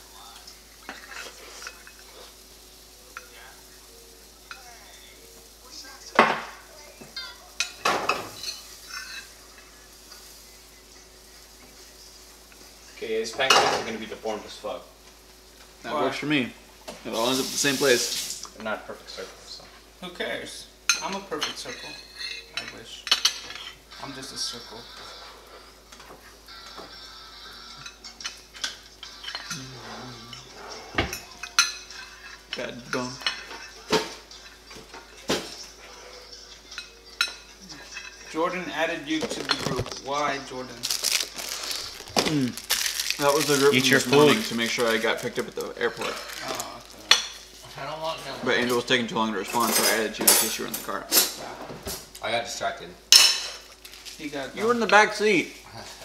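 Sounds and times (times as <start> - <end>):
batter sizzling: 0.0 - 51.0, 52.1 - 56.0
metal utensils clinking: 36.7 - 47.6, 48.6 - 52.0.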